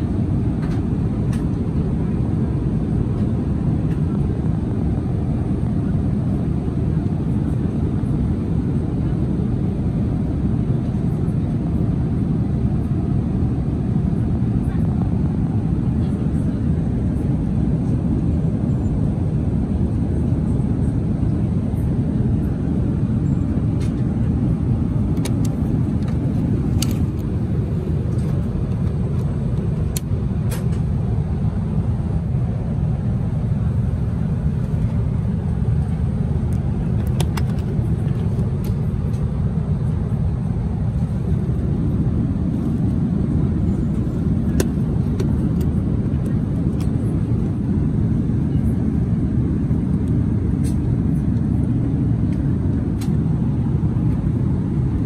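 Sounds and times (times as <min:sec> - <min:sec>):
aircraft cabin rush: 0:00.0 - 0:55.0
light clicks of seat fittings: 0:25.2 - 0:27.3.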